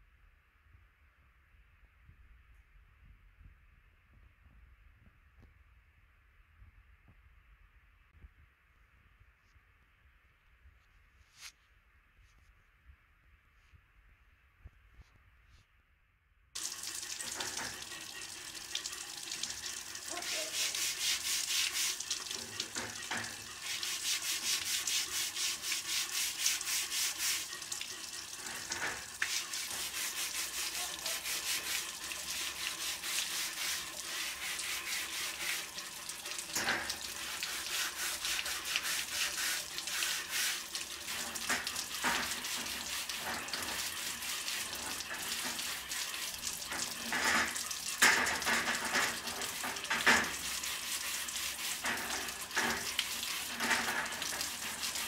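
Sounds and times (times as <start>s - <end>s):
water splashing onto steel grating: 16.6s - 55.0s
brush scrubbing metal roller: 19.4s - 55.0s.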